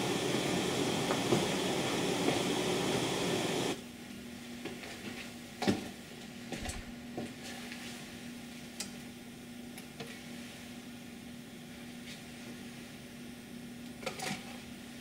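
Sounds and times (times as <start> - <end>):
amplified hiss and hum: 0.0 - 3.8.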